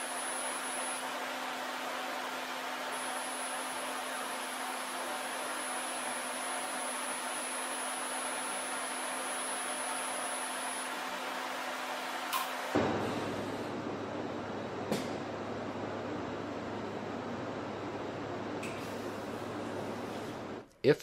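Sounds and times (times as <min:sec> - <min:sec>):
machine hissing and humming: 0:12.3 - 0:15.2.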